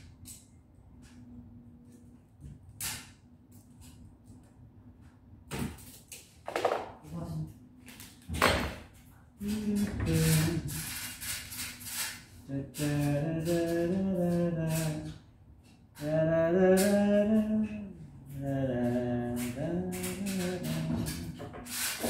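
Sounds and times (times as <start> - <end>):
man singing unaccompanied: 12.5 - 15.2, 16.0 - 21.4.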